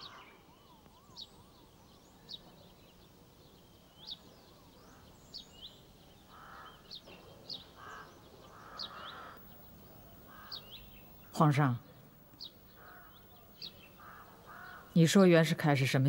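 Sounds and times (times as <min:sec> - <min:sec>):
harsh caw-like bird calls: 0:00.0 - 0:00.5, 0:06.2 - 0:11.4, 0:12.7 - 0:15.0.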